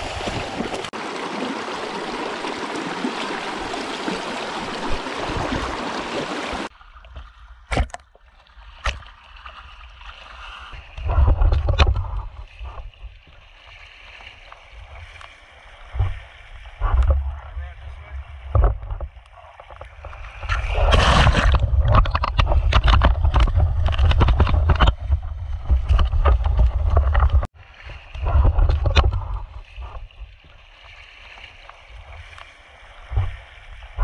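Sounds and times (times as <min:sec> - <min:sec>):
river water splashing: 0:00.0 - 0:34.0
knocks and clicks: 0:18.5 - 0:19.1, 0:21.3 - 0:27.5.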